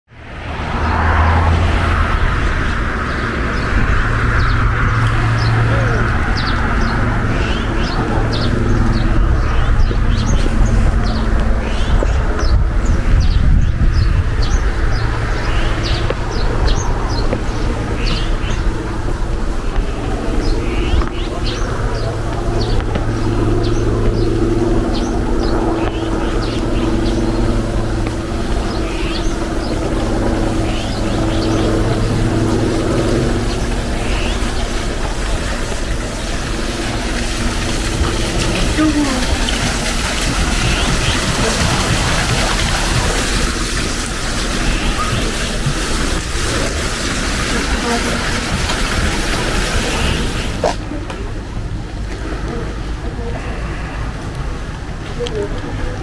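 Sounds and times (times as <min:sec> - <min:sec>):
low rumble: 0:00.1 - 0:56.0
small birds chirping: 0:03.1 - 0:18.8, 0:19.8 - 0:43.0.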